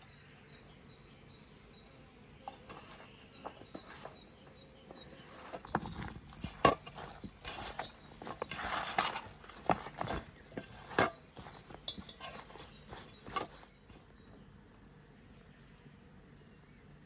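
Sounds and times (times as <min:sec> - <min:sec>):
clinks and scrapes on metal tray: 0:02.4 - 0:14.0.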